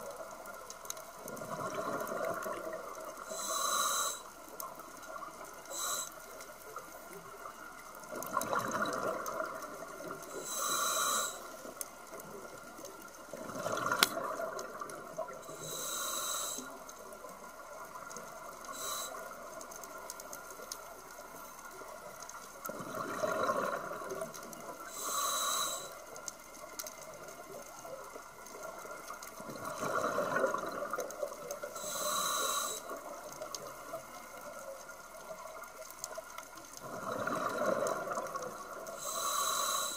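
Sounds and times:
exhaled bubbles hissing: 0:00.0 - 0:20.1, 0:22.6 - 0:27.1, 0:28.4 - 0:34.0, 0:36.7 - 0:39.9
diver breathing through regulator: 0:03.3 - 0:04.4, 0:05.7 - 0:06.2, 0:10.3 - 0:11.6, 0:15.4 - 0:16.8, 0:18.7 - 0:19.2, 0:24.9 - 0:26.0, 0:31.8 - 0:33.0, 0:39.0 - 0:39.9.

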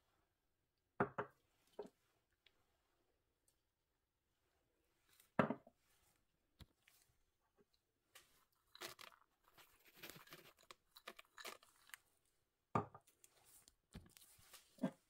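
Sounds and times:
nuts rustling onto batter: 0:08.2 - 0:12.1.

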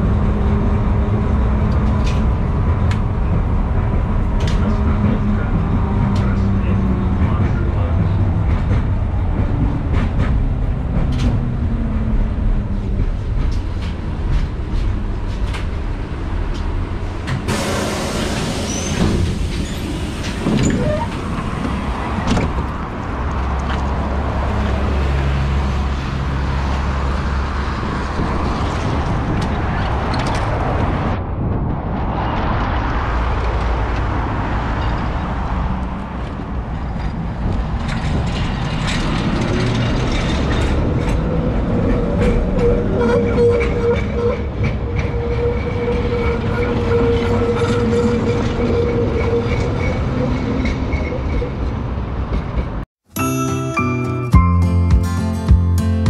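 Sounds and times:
tram wheels on rails: 0:00.0 - 0:52.8
tram low hum: 0:00.0 - 0:56.0.

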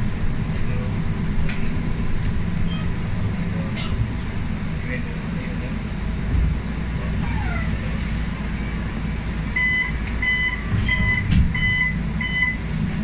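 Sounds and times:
bus diesel engine idling: 0:00.0 - 0:13.0
warning beeps: 0:09.6 - 0:12.6.

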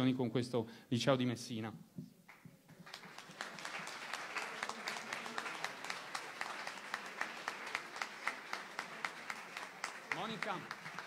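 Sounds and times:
audience applauding: 0:02.3 - 0:11.0.

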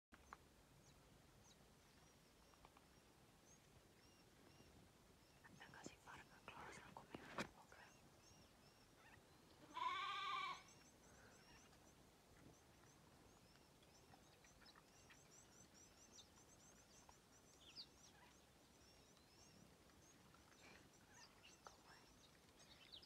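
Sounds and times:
faint high chirps: 0:00.2 - 0:23.0
impala bleat: 0:09.6 - 0:10.7.

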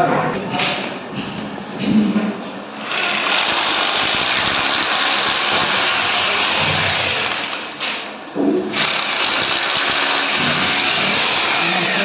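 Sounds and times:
machine motor whirring: 0:02.8 - 0:08.1, 0:08.7 - 0:12.0.

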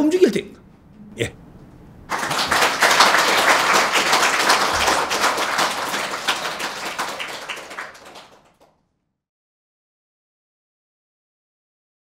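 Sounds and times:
audience applauding: 0:02.1 - 0:08.7.

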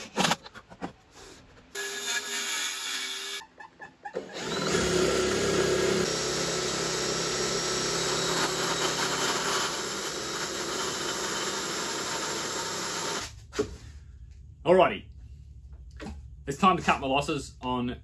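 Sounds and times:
circular saw cutting wood: 0:01.8 - 0:03.4, 0:04.2 - 0:13.3.

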